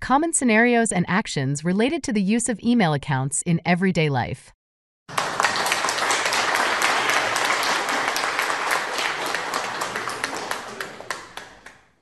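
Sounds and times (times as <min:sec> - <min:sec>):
applause: 0:05.1 - 0:12.0.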